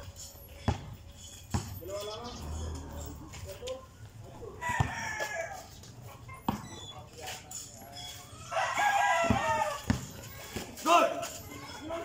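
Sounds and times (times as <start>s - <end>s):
basketball bouncing on concrete: 0.7s - 1.8s, 4.7s - 5.3s, 6.4s - 6.8s, 9.2s - 10.7s
rooster crowing: 4.6s - 5.7s, 8.4s - 9.9s.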